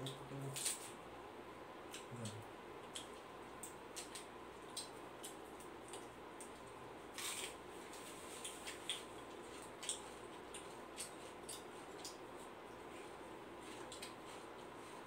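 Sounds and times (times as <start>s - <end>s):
low room hum: 0.0s - 15.0s
eating clicks and smacks: 1.8s - 7.5s, 8.4s - 12.9s, 13.7s - 14.7s.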